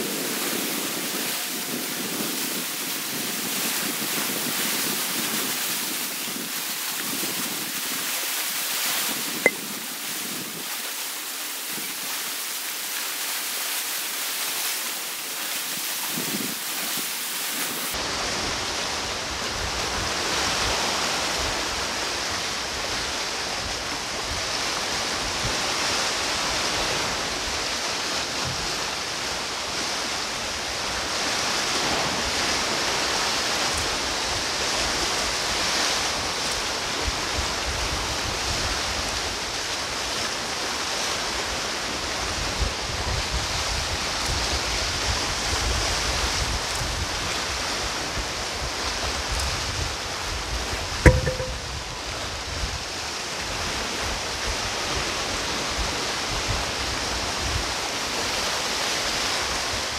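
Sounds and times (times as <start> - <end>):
wind rumble on microphone: 0.0 - 8.2, 33.6 - 39.7, 42.0 - 51.9
waves on rocky shore: 0.0 - 51.4, 52.9 - 59.9.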